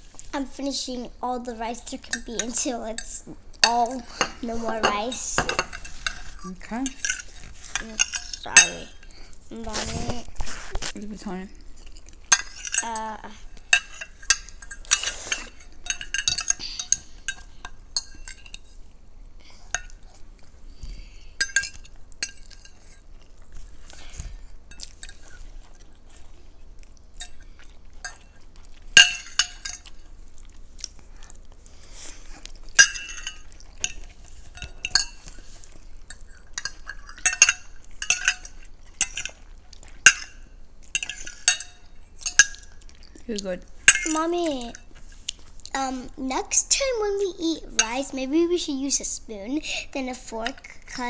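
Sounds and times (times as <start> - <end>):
forks clinking on glass bowls: 2.1 - 9.1, 13.7 - 18.7, 29.0 - 30.0, 32.8 - 35.4, 36.1 - 39.4, 40.0 - 42.8, 43.9 - 44.9.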